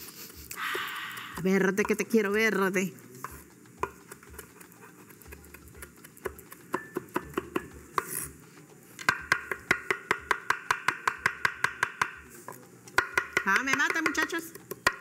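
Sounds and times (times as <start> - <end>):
knife chopping on wooden board: 3.3 - 8.3, 9.0 - 15.0.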